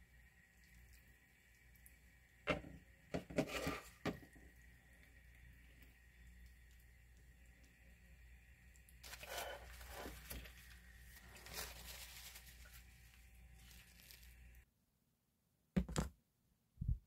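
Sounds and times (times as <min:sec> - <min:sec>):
leafy greens scraped from pan: 0:03.4 - 0:04.1, 0:09.0 - 0:14.3.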